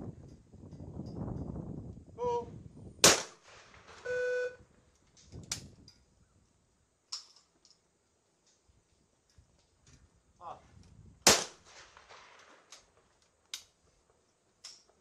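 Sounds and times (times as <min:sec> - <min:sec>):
shotgun shots: 0:03.0 - 0:04.0, 0:11.2 - 0:12.4
short electronic beep: 0:04.1 - 0:04.6.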